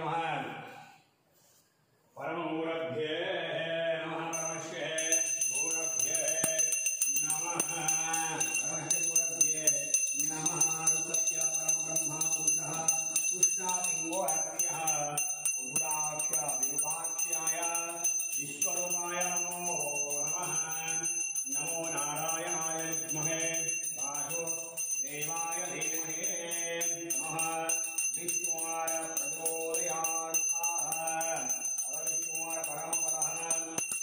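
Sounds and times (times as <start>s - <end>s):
person chanting: 2.2s - 34.0s
hand bell ringing rapidly: 4.4s - 34.0s.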